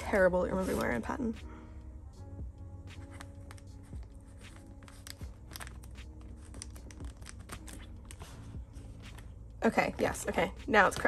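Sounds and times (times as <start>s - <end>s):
cards sliding in plastic sleeves: 2.9s - 9.3s
plastic binder pages crinkling: 3.0s - 9.4s.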